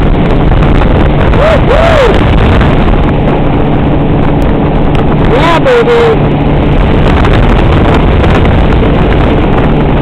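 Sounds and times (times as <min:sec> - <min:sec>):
boat engine running: 0:00.0 - 0:10.0
wind buffeting microphone: 0:00.0 - 0:10.0
person whooping: 0:01.4 - 0:02.2.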